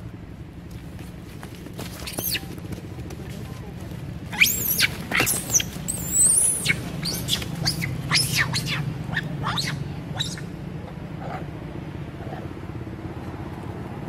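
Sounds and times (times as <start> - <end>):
monkey screaming: 2.0 - 2.5, 4.3 - 10.6.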